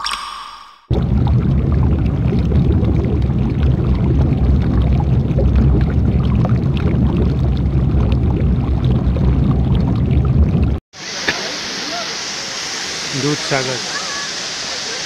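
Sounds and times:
waterfall rushing: 11.0 - 15.0.

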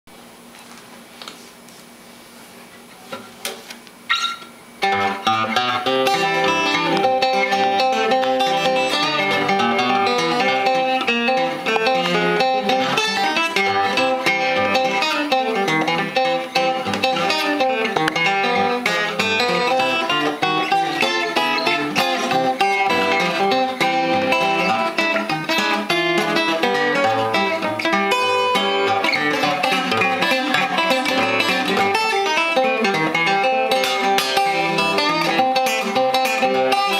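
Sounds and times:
fingerstyle acoustic guitar: 2.6 - 36.9
guitar handling knocks: 4.9 - 20.0.

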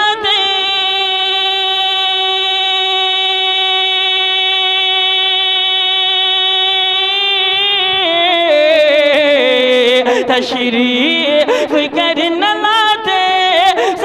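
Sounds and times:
man singing: 0.0 - 14.0.

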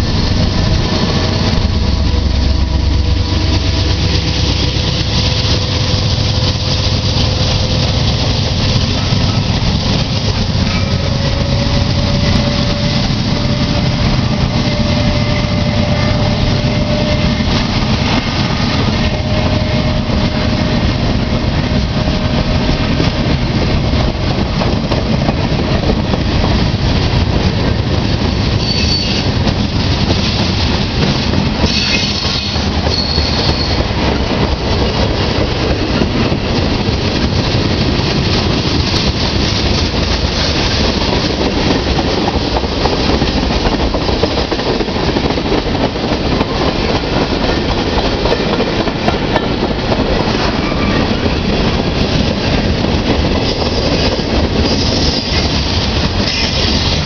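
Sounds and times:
freight train rumbling on rails: 0.0 - 57.0
locomotive engine drone: 0.0 - 57.0
train wheel squeal: 2.0 - 21.0, 28.5 - 29.5, 31.6 - 33.9, 50.4 - 51.4, 53.3 - 57.0.

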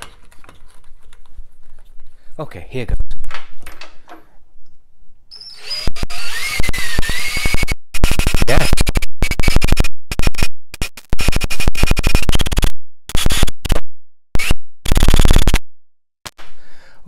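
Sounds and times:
crackling interference clicks: 7.0 - 13.8, 14.4 - 15.6.

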